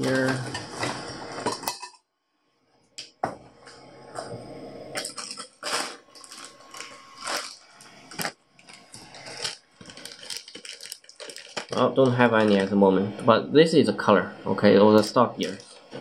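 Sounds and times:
hands rummaging through small parts: 5.0 - 12.6.

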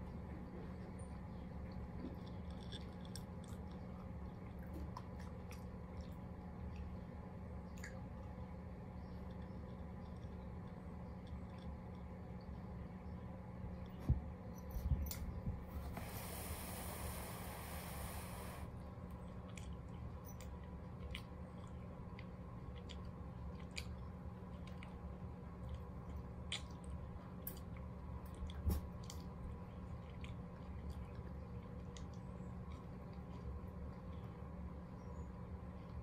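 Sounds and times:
steady low hum: 0.0 - 36.0
brief hiss: 15.9 - 18.7.

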